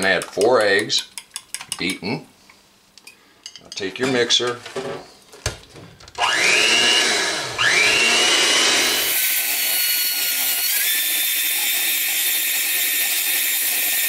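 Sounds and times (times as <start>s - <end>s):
electric hand mixer whine: 6.2s - 14.0s.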